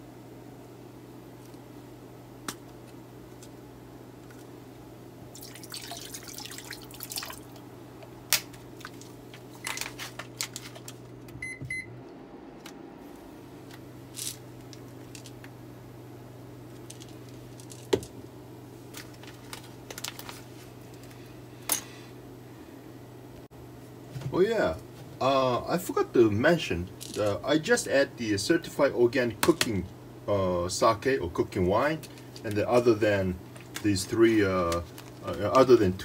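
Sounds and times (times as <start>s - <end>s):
low electrical hum: 0.0s - 36.0s
plastic bottle and bag rustling: 8.8s - 11.0s.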